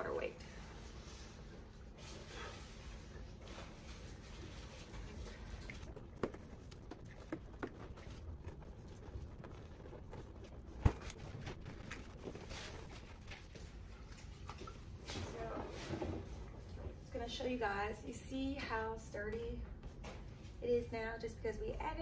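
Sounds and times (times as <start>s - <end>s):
balloons rubbing: 5.8s - 13.9s.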